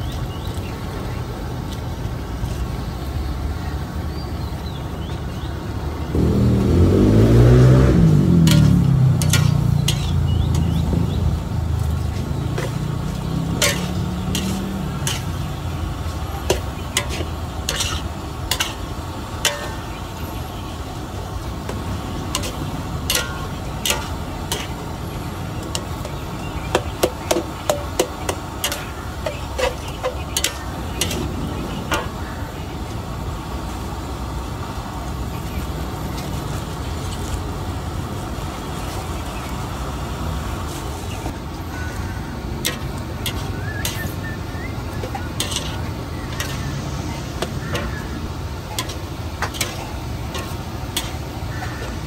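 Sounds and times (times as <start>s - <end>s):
engine: 0.0s - 52.0s
steady low rumble: 0.9s - 52.0s
metal spatula scraping a wok: 8.4s - 10.8s, 12.4s - 20.2s, 21.7s - 24.9s, 25.6s - 31.3s, 42.6s - 44.3s, 45.0s - 46.7s, 47.4s - 52.0s.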